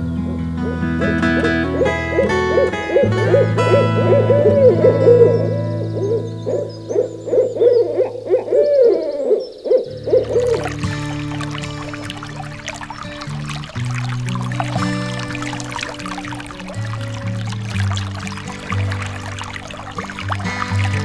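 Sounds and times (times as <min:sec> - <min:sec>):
owl hooting: 0:00.6 - 0:14.5.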